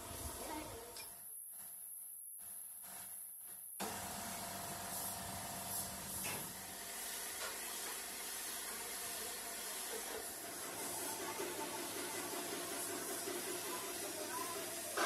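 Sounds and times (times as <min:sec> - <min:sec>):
spray gun hissing: 0:04.8 - 0:15.0.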